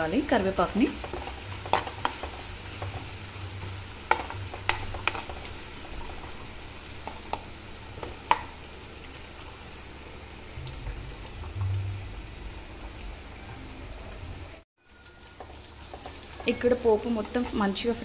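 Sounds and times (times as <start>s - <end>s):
vegetables sizzling in oil: 0.0s - 18.0s
spoon stirring: 4.1s - 6.4s.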